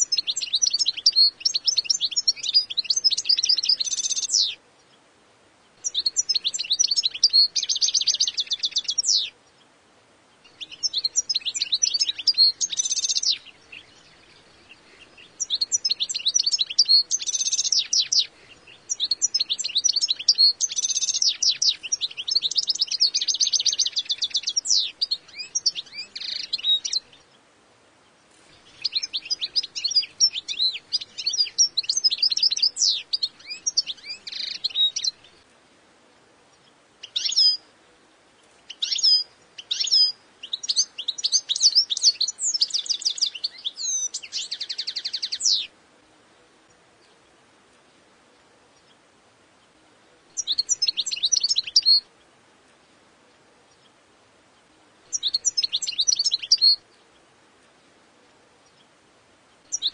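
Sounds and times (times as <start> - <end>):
goldfinch twittering song: 0.0 - 5.0, 5.7 - 9.7, 10.4 - 27.4, 28.1 - 35.4, 36.5 - 37.7, 38.5 - 45.7, 50.3 - 52.2, 55.1 - 57.3, 59.5 - 59.9.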